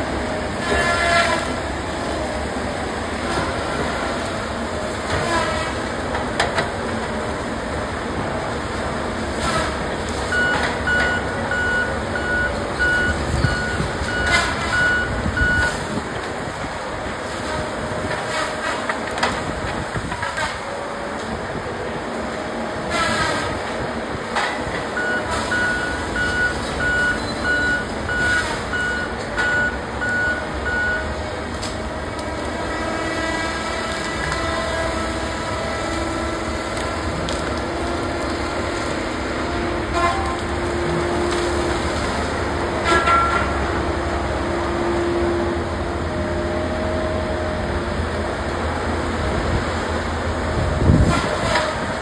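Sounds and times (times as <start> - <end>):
diesel engine and hydraulics: 0.0 - 52.0
travel alarm beeping: 10.3 - 15.8, 25.0 - 31.1.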